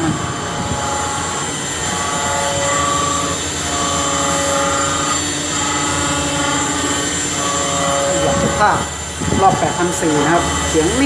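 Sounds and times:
machine spindle whining: 0.0 - 11.0.

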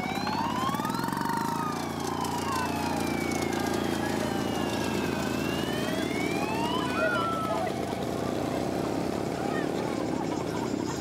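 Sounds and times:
siren wailing: 0.0 - 8.5
small engine running: 0.0 - 11.0.

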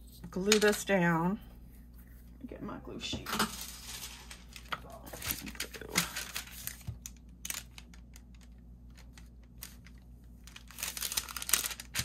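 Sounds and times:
paper rustling: 3.4 - 12.0.

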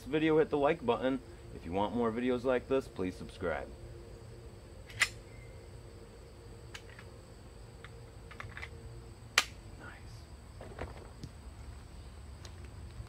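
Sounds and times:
pistol mechanical clicks: 4.8 - 5.2, 6.7 - 7.1, 7.8 - 9.6
pistol sharp snap: 4.8 - 5.2, 9.3 - 9.6.

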